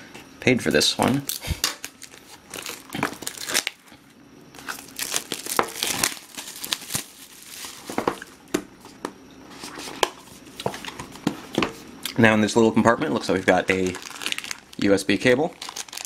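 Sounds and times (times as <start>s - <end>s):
plastic wrapping tearing and crinkling: 1.3s - 3.8s, 4.6s - 8.3s, 13.3s - 16.0s.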